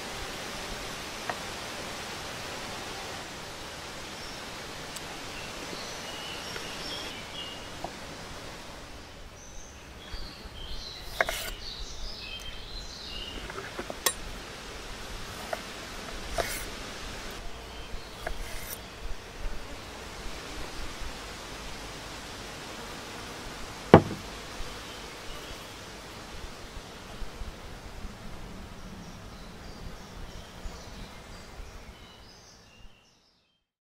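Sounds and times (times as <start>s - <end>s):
outdoor background hiss: 0.0s - 33.6s
birds chirping: 2.4s - 22.2s, 23.5s - 26.6s
fork and knife clicking on wood: 11.0s - 11.6s.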